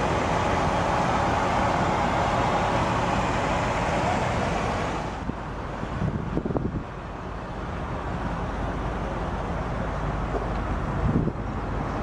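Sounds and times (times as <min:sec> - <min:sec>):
wind buffeting microphone: 0:05.1 - 0:07.0, 0:10.2 - 0:12.0.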